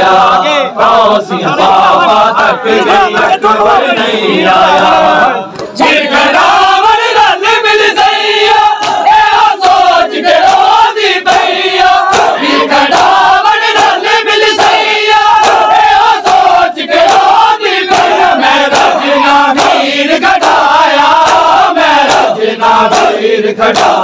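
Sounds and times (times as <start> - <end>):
crowd of men chanting: 0.0 - 24.0
chest-beating slaps: 5.5 - 5.9, 8.7 - 9.8, 11.3 - 24.0.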